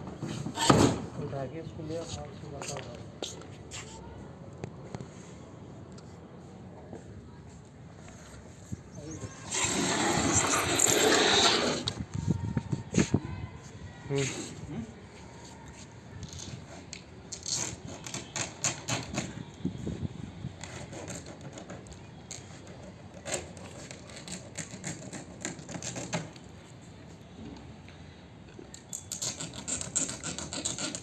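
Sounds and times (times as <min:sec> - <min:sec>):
wind rumble on microphone: 0:11.8 - 0:14.1, 0:19.1 - 0:20.9
plastic strap clicking and scraping: 0:16.2 - 0:19.3, 0:20.6 - 0:26.5, 0:28.8 - 0:31.0.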